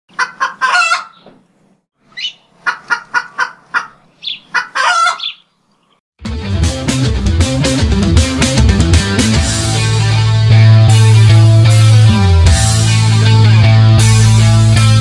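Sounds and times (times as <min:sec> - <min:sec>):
chicken squawks: 0:00.1 - 0:01.3, 0:02.1 - 0:05.5
chicken clucking: 0:00.1 - 0:01.4, 0:02.2 - 0:05.4
rock music with guitar: 0:06.2 - 0:15.0.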